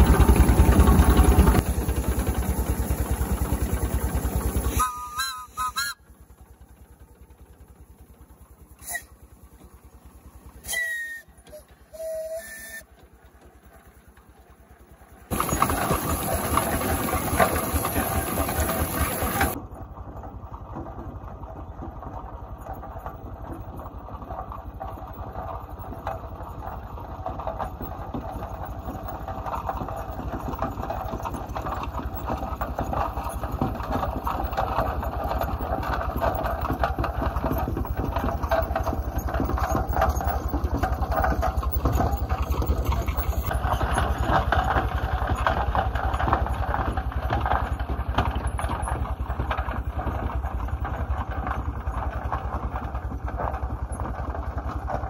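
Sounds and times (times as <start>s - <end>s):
steam traction engine running: 0.0s - 55.0s
steam whistle toots: 4.7s - 6.2s, 8.8s - 9.2s, 10.6s - 12.9s.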